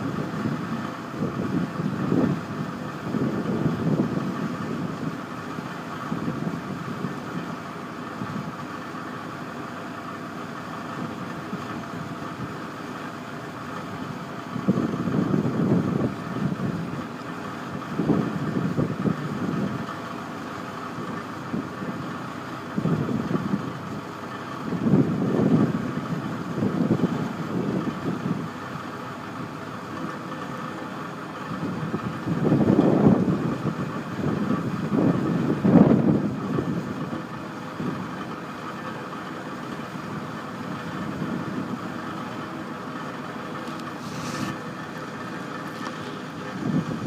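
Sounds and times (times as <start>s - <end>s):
wind buffeting microphone: 0.0s - 8.8s, 13.6s - 20.0s, 21.1s - 29.5s, 31.4s - 38.3s, 43.0s - 47.0s
tractor engine idling fast: 0.0s - 47.0s
brief hiss: 43.8s - 44.7s.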